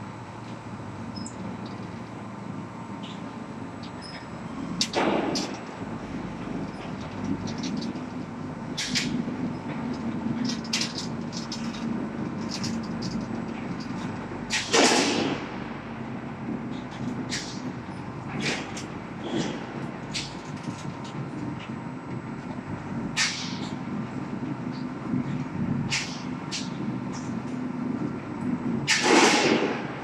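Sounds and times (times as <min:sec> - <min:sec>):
metallic clicks and clatter: 0:04.8 - 0:05.7, 0:06.4 - 0:15.2, 0:16.7 - 0:22.6.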